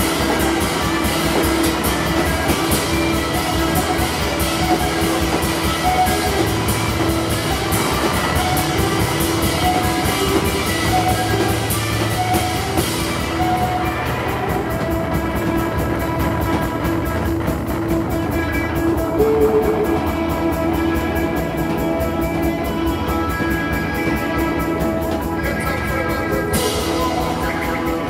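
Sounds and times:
droning electric guitar: 0.0s - 28.0s
live band playing loud music: 0.0s - 28.0s.

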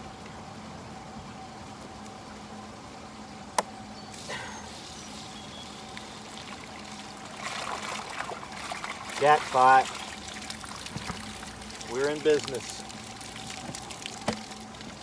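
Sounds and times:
faint steady hum: 0.0s - 15.0s
water pouring and splashing: 4.2s - 15.0s.

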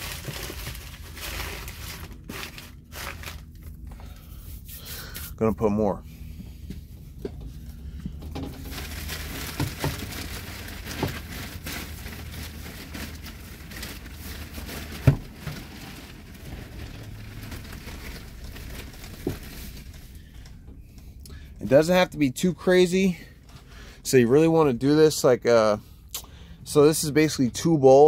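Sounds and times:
wood shavings rustling and pouring: 8.6s - 15.0s.

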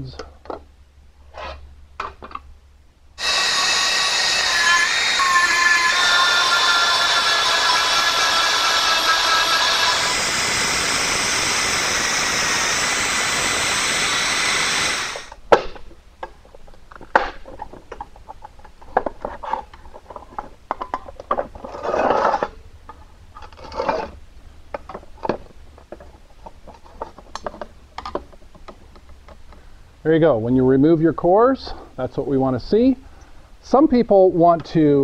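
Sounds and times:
screwdriver scraping metal: 3.2s - 10.6s
pneumatic grinder whining: 3.2s - 15.4s.

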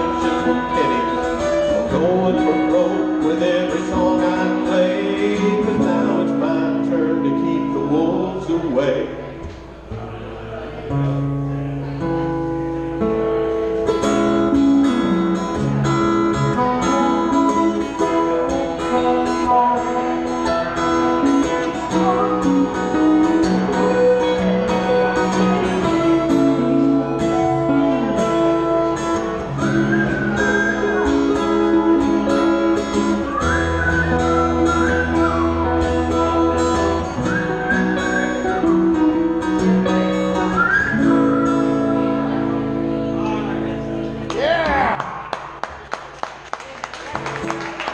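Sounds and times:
live band playing: 0.0s - 7.9s, 12.7s - 44.3s
guitar sliding high notes: 10.9s - 44.2s.

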